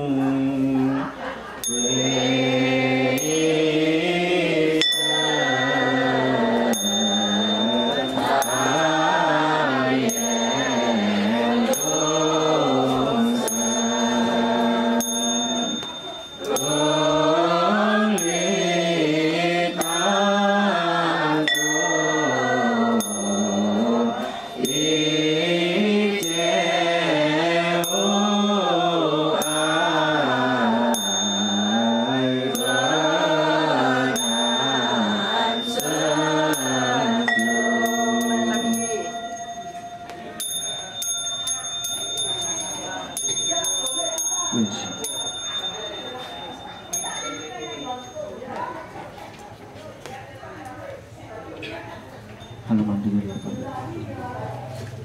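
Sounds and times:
monks chanting together: 0.0 - 15.8, 16.5 - 42.3
light high ring or tick: 15.0 - 16.7, 37.3 - 43.6.

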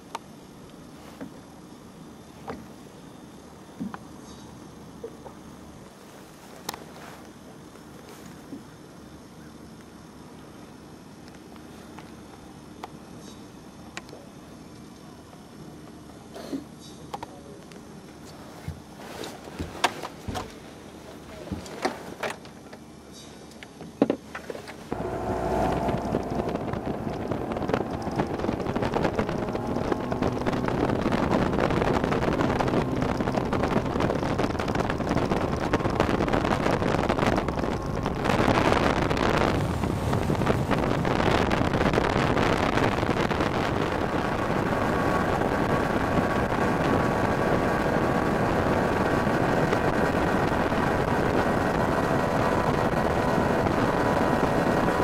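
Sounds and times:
outboard motor whine: 0.0 - 16.4, 23.8 - 55.0
wind: 0.0 - 55.0
rushing water: 25.0 - 42.7.

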